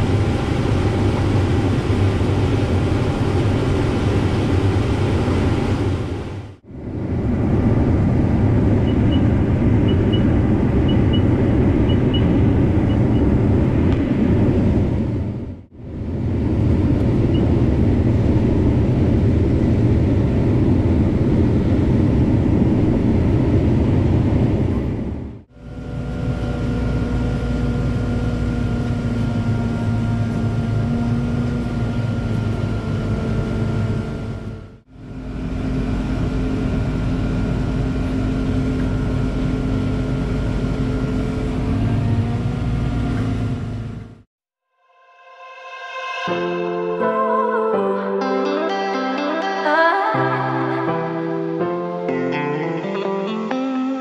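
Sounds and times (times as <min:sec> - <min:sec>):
steady whine: 0:00.0 - 0:42.3
diesel engines running: 0:00.0 - 0:44.3.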